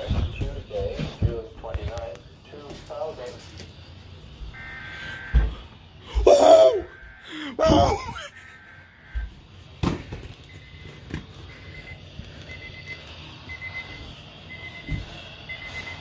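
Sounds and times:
weather radio electronic tones: 4.4 - 9.4, 10.4 - 16.0
short beeps: 10.5 - 16.0.

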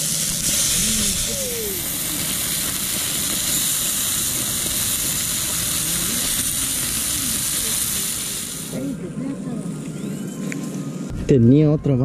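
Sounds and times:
fish sizzling in a pan: 0.0 - 8.9.

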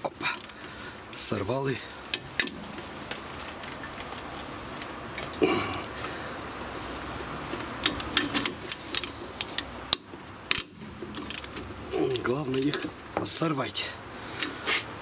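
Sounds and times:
ratchet clicking: 7.8 - 12.9.

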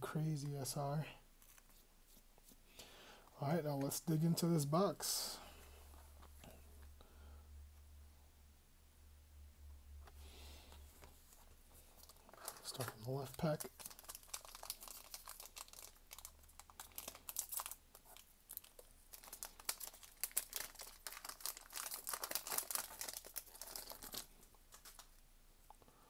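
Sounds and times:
foil pack crinkling and tearing: 12.0 - 25.2.

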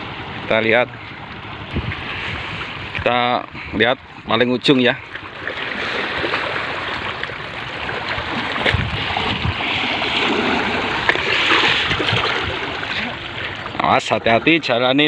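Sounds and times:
sea water splashing on rocks: 5.4 - 13.8.

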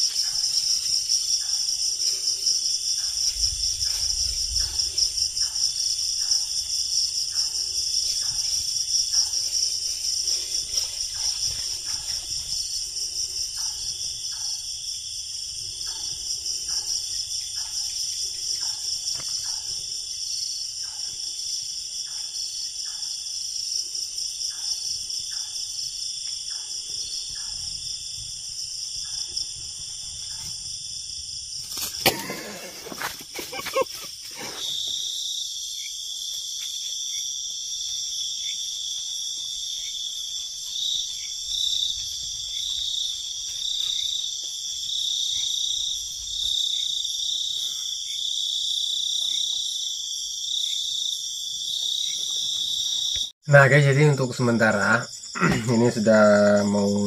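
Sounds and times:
crickets trilling: 0.0 - 57.0
low-pitched insect trill: 0.0 - 57.0
rustles in dry grass: 7.8 - 13.0.

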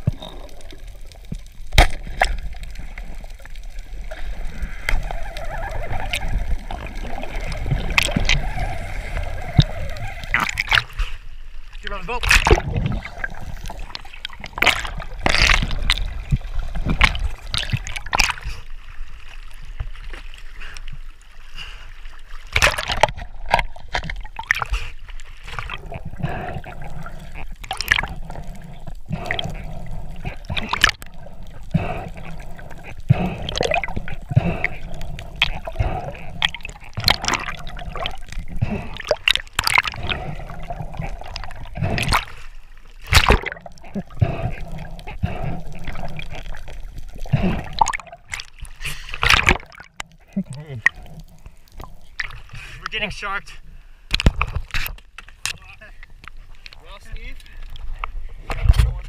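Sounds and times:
knocks and clicks underwater: 0.0 - 11.1, 12.1 - 18.6, 22.5 - 42.4, 43.0 - 53.2, 54.1 - 59.0
muffled underwater noise: 25.6 - 39.2, 43.4 - 48.0.

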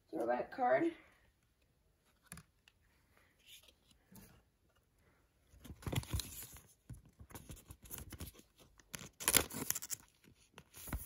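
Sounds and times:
cards rustling and sliding: 2.0 - 4.9, 5.6 - 11.0.

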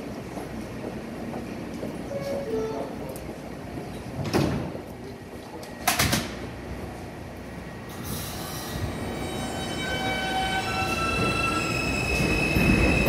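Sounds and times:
subway train doors sliding shut: 2.0 - 6.7, 7.8 - 13.0.

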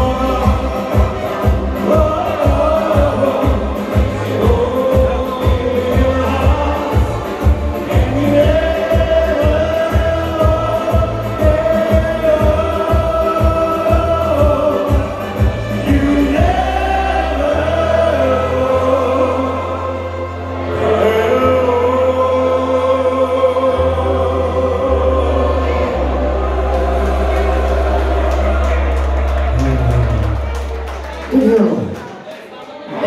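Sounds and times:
held bass notes: 0.0 - 31.4
long held vocal notes: 15.8 - 30.7.

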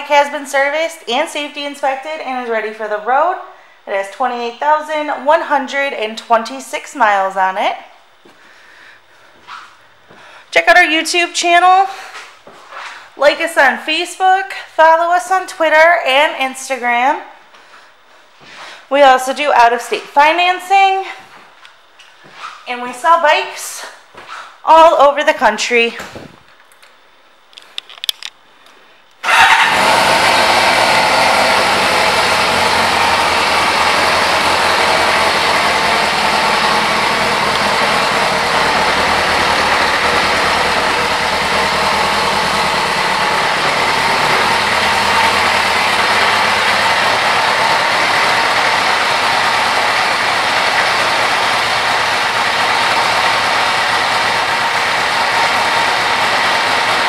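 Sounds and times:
motorcycle engine starting and idling: 29.2 - 57.0.

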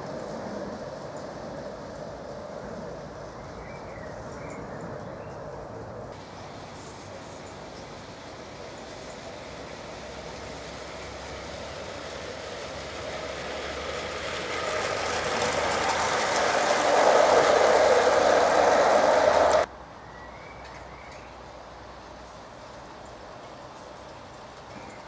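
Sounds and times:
model train passing: 0.0 - 19.7.

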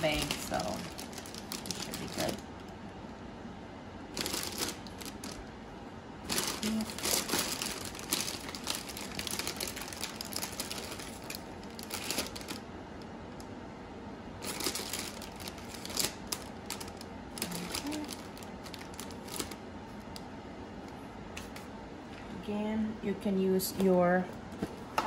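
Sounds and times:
plastic bag crinkling: 0.0 - 2.7, 4.1 - 5.6, 6.2 - 12.7, 14.4 - 20.2.

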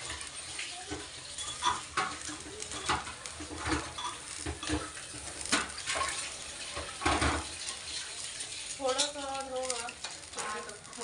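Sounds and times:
spatula stirring in pan: 0.0 - 11.0
dishes clinking at sink: 0.9 - 4.9.

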